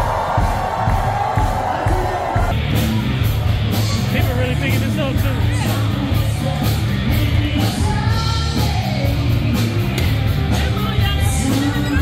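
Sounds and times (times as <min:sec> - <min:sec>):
loud party music with beat: 0:00.0 - 0:12.0
person singing: 0:05.4 - 0:12.0.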